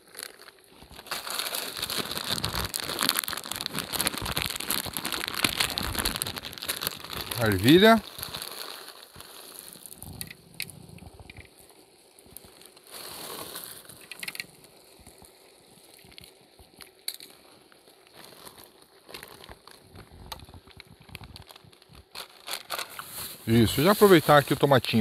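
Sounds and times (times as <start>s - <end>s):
aluminium foil rustling: 0.0s - 10.4s, 11.5s - 25.0s
rice simmering in pan: 0.0s - 24.7s.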